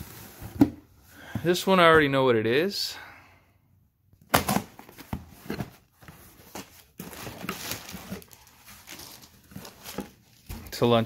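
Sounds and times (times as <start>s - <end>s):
plastic packaging rustling: 4.9s - 11.0s.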